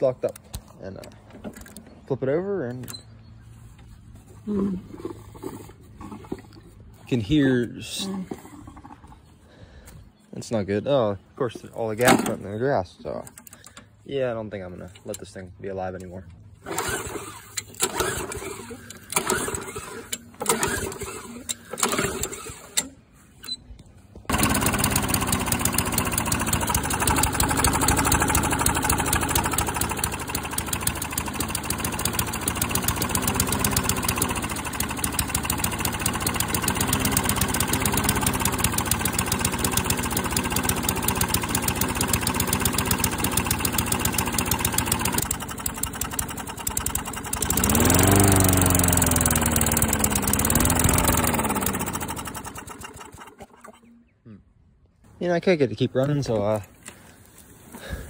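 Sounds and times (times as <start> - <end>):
lawn mower engine starting: 0.0 - 2.0, 2.6 - 9.8, 11.5 - 15.4, 16.5 - 54.0.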